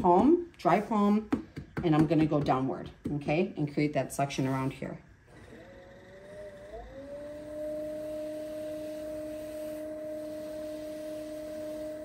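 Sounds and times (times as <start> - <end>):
pottery wheel motor whining: 4.2 - 12.0.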